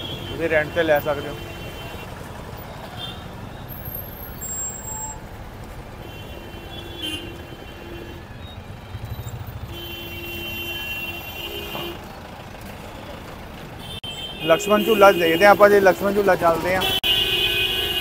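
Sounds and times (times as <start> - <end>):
street traffic: 0.0 - 18.0
vehicle horn honking: 6.0 - 12.1, 13.8 - 15.9, 16.8 - 18.0.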